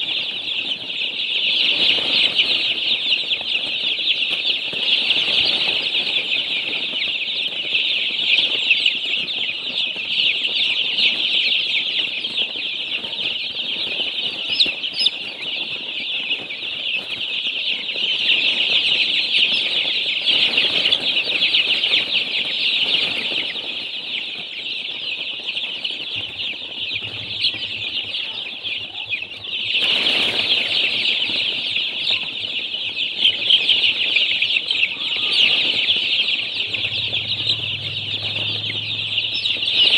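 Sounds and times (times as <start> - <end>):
baby chicks peeping: 0.0 - 39.9.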